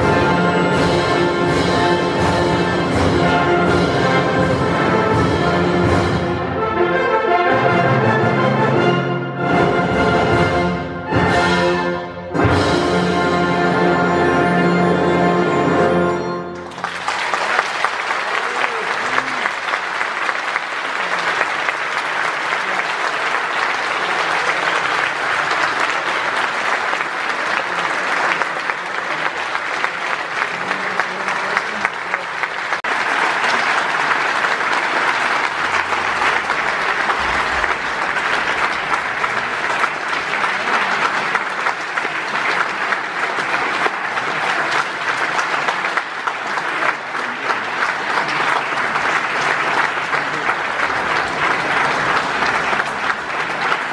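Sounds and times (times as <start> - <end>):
audience applauding: 16.5 - 53.9.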